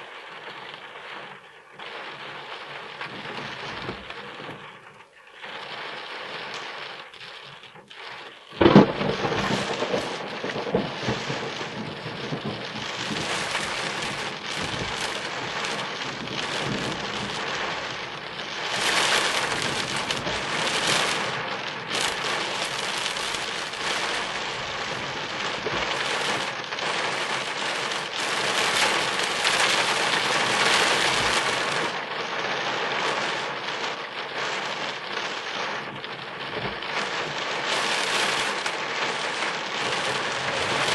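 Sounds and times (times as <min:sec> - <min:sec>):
heavy rain on a car: 0:00.0 - 0:40.9.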